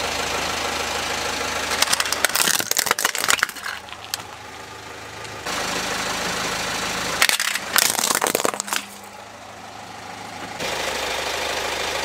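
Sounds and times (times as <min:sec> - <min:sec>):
car engine idling: 0:00.0 - 0:12.0
plastic cracking: 0:01.8 - 0:04.3, 0:07.2 - 0:09.0.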